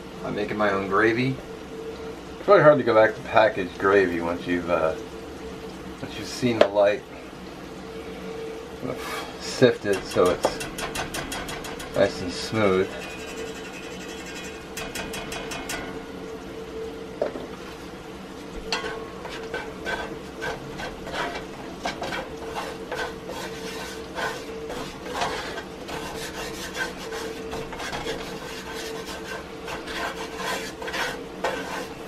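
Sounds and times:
wooden spatula scraping skillet: 8.9 - 15.9, 18.7 - 32.0.

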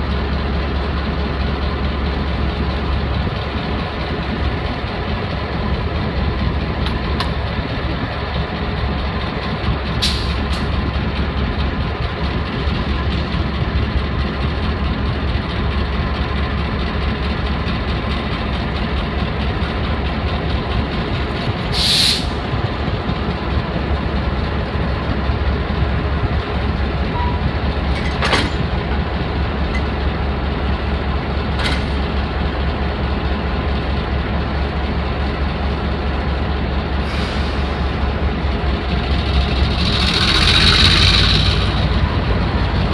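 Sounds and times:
diesel locomotive engine idling: 0.0 - 42.9
air hissing: 21.7 - 22.4.

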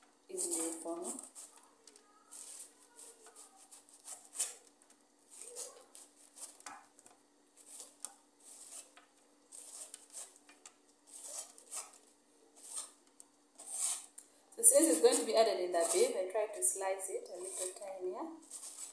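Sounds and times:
knife slicing cabbage: 0.4 - 4.7, 5.3 - 7.0, 7.6 - 10.4, 11.0 - 13.0, 13.6 - 14.1, 15.1 - 16.2, 17.4 - 17.8, 18.4 - 18.9.

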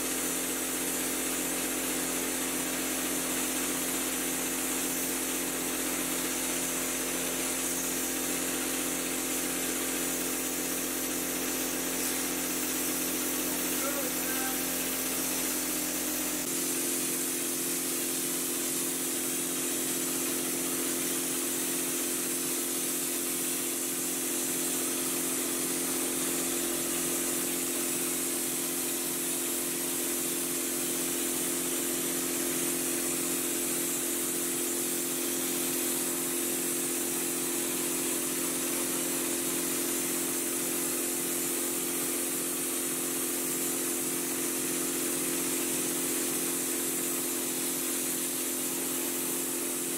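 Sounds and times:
air compressor droning: 0.0 - 49.9
texture spray gun hissing: 0.0 - 49.9.

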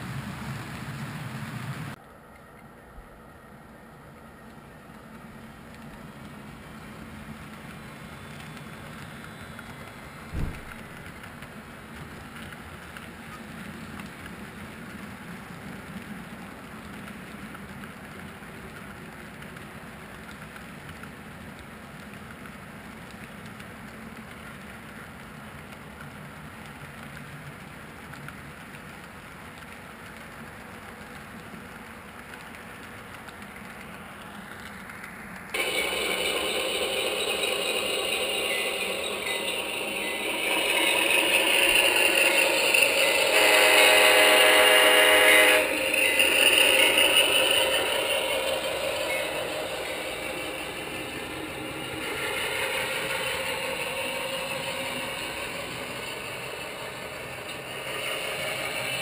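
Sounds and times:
model locomotive rattling past: 4.6 - 59.0
model train wheels clattering: 29.0 - 59.0.

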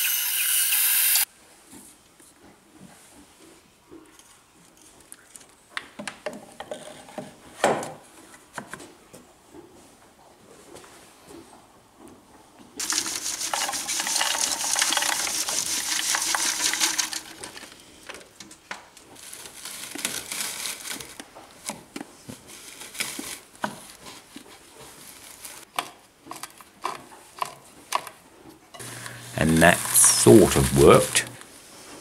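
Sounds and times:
charcoal crunching in grinder: 12.8 - 18.3, 19.0 - 21.7, 28.8 - 31.4.

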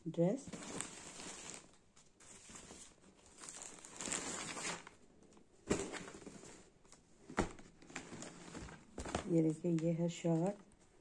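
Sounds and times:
clothes and packaging rustling: 0.1 - 11.0.

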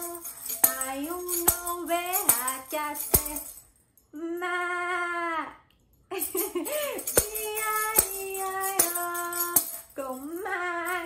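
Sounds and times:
person singing: 0.0 - 3.6, 4.2 - 5.6, 6.3 - 11.0
tambourine striking: 0.0 - 3.7, 6.2 - 10.0.

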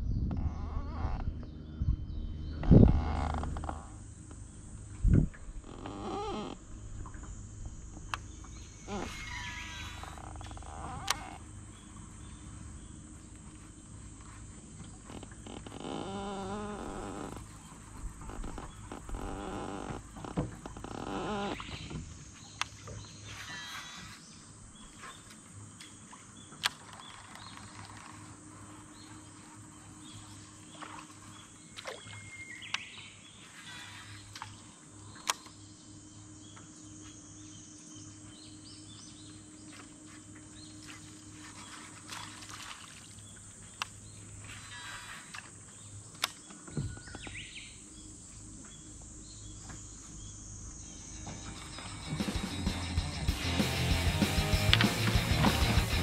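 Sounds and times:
low hum: 0.0 - 19.8, 50.1 - 56.0.

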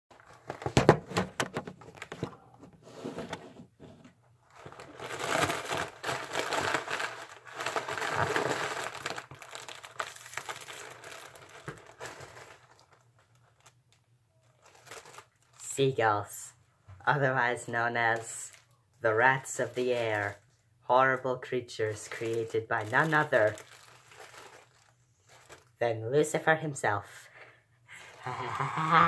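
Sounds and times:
foil balloon crinkling: 4.4 - 15.7, 21.8 - 25.8.

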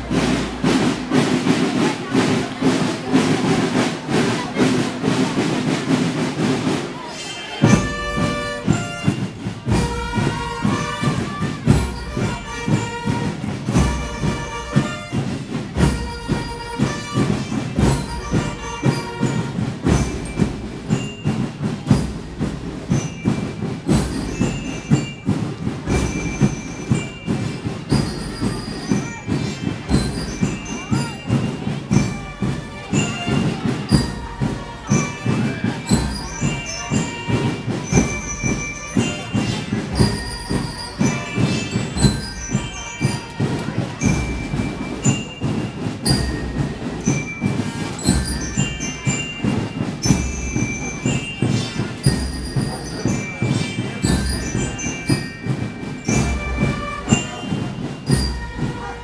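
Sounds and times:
marching band playing a march: 0.0 - 59.0.

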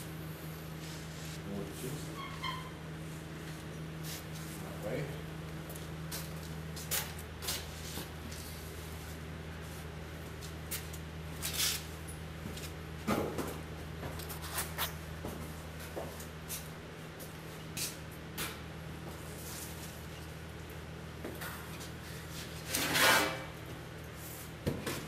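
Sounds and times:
steady low hum: 0.0 - 25.0
metal scrape: 22.6 - 23.5.

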